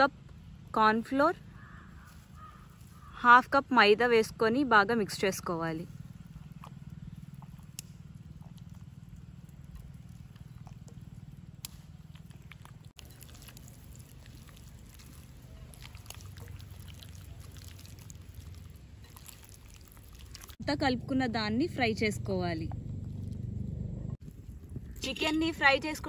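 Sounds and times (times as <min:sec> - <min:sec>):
hands squishing chicken in coating: 0:08.5 - 0:20.6
low rumble: 0:20.5 - 0:26.0.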